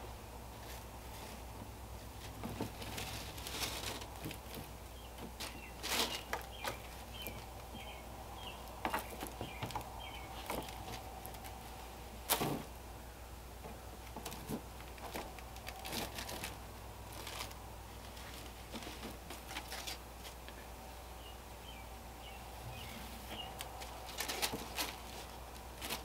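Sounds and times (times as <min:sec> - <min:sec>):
fabric rustling: 0:00.0 - 0:07.6, 0:14.2 - 0:20.5, 0:23.0 - 0:26.0
low steady hum: 0:00.0 - 0:26.0.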